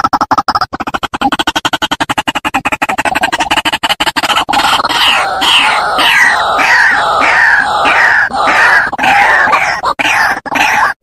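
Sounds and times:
rapid clicking pulses: 0.0 - 11.0
bird calling repeated notes: 4.3 - 11.0.

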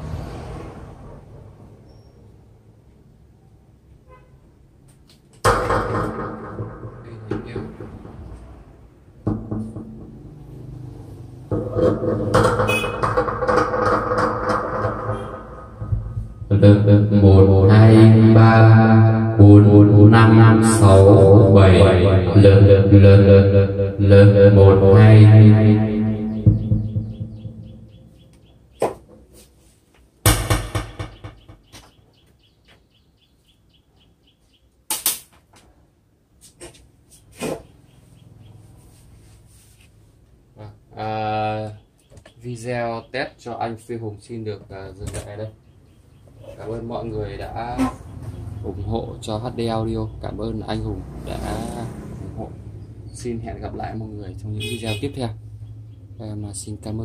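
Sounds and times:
knock on microphone: 5.5 - 8.6, 9.2 - 10.3, 11.5 - 16.6, 25.6 - 28.1, 30.3 - 31.8.

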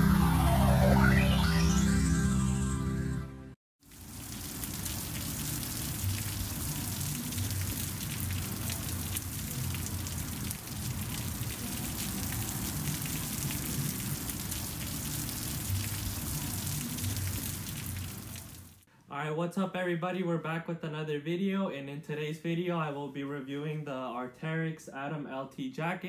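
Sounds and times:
heavy rain on wet pavement: 3.8 - 18.8.

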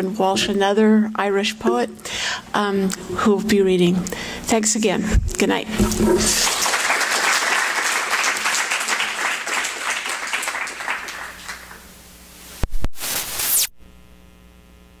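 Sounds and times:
faint steady hum: 0.0 - 12.9, 13.7 - 15.0
sharp knocks: 5.7 - 6.5
audience applauding: 6.2 - 11.8.

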